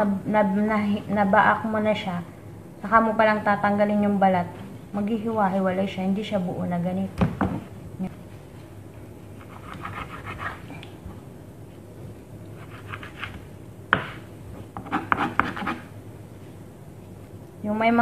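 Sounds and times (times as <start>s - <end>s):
knife scraping on cutting board: 9.4s - 10.8s, 12.6s - 13.4s, 14.8s - 15.9s.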